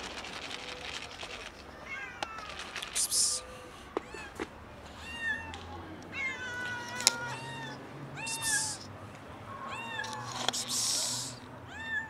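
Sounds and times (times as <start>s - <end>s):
kitten meowing: 5.0s - 8.8s.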